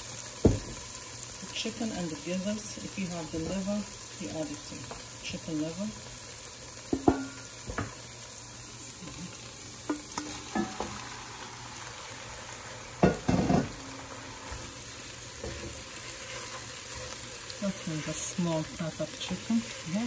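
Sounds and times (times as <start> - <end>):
food sizzling in a pot: 0.0 - 20.0
wooden spoon knocking and scraping pot: 6.9 - 8.0, 9.9 - 11.0, 13.0 - 13.8.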